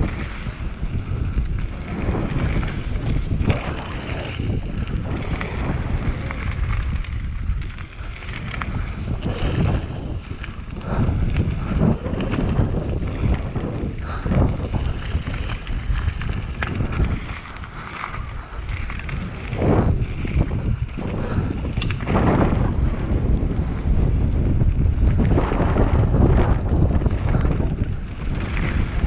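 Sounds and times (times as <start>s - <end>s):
bike clattering over bumps: 0.0s - 29.0s
wind buffeting microphone: 0.0s - 29.0s
sharp click: 21.8s - 22.1s.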